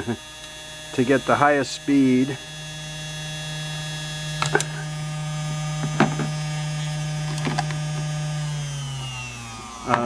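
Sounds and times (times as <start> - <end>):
electric motor humming: 0.0 - 10.0
motor mount clicks: 4.3 - 4.8, 7.2 - 8.1.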